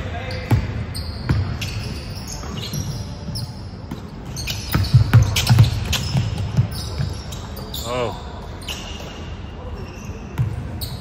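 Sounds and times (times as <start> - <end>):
sneakers squeaking: 0.0 - 11.0
basketball bouncing on wooden floor: 4.0 - 7.2.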